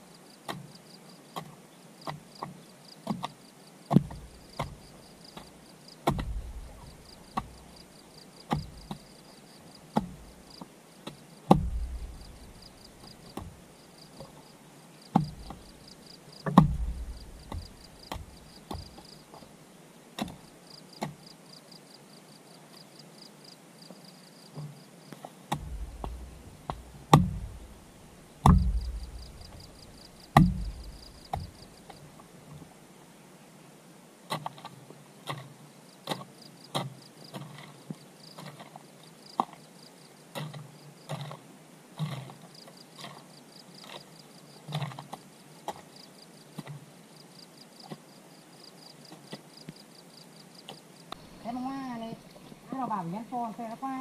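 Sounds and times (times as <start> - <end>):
insects chirping: 0.0 - 32.7, 35.7 - 41.2, 42.3 - 54.0
hand tool chopping strikes: 6.0 - 7.6, 8.5 - 9.0, 11.5 - 12.7, 15.2 - 15.6, 16.4 - 18.9, 25.5 - 27.7, 28.4 - 31.6.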